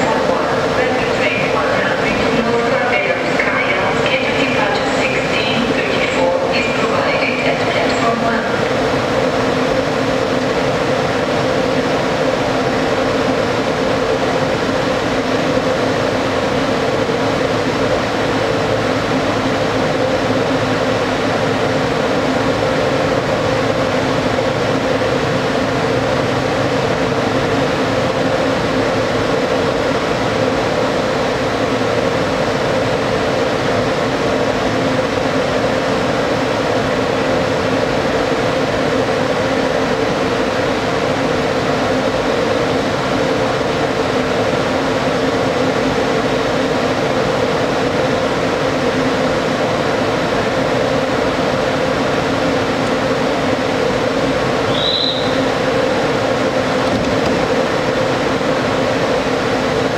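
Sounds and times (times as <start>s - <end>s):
locomotive blowers humming: 51.2s - 59.9s.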